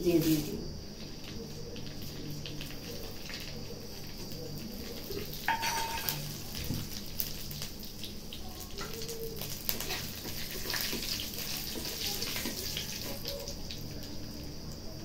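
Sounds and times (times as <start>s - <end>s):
spices sizzling in hot oil: 0.0s - 15.0s
spatula scraping pan: 5.5s - 6.4s, 9.7s - 13.2s.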